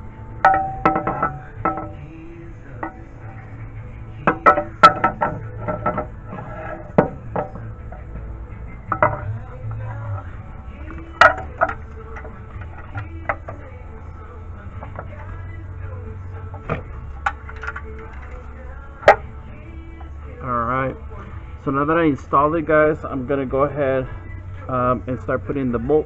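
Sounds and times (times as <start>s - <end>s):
metal clanks and clinks: 0.4s - 2.1s, 4.2s - 8.1s, 8.9s - 9.4s, 10.9s - 13.7s, 16.5s - 19.3s.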